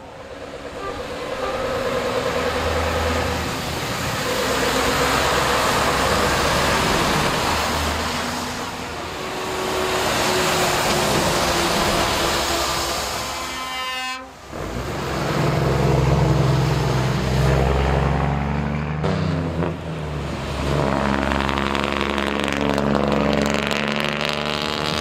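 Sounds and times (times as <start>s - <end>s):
tyres hissing on wet road: 0.0s - 18.2s
trucks driving past: 0.0s - 25.0s.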